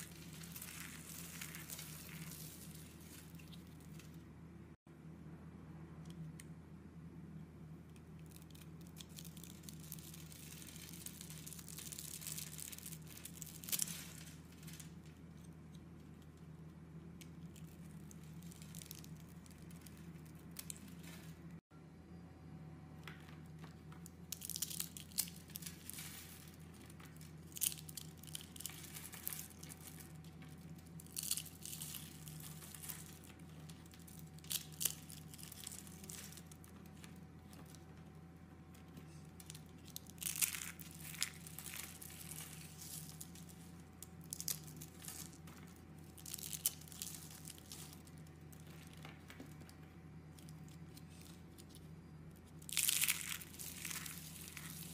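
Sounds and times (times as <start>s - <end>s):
soap cubes pattering onto pile: 0.0s - 4.2s.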